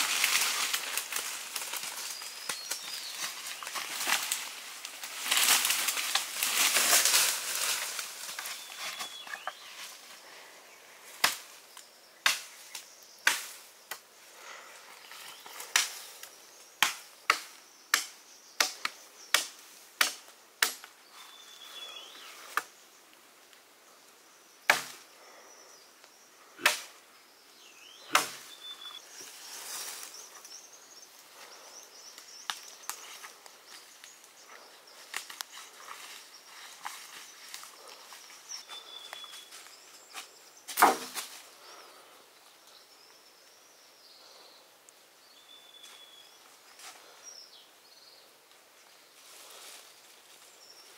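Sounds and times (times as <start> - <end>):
rustling through brush: 0.0 - 13.8, 27.9 - 42.0, 48.9 - 50.9
knife chopping wood: 16.8 - 20.9, 26.6 - 26.9, 28.1 - 28.4, 40.7 - 41.2.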